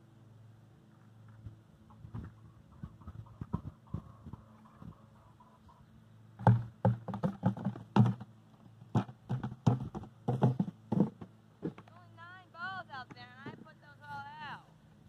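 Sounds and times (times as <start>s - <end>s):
knocks and thumps: 6.4s - 11.9s.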